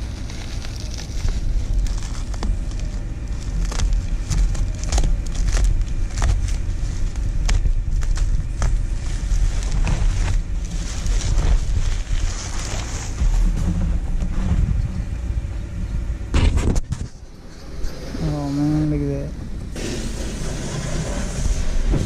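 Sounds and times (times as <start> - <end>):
packing paper and bubble wrap rustling: 0.0 - 14.8
low steady rumble: 0.0 - 22.0.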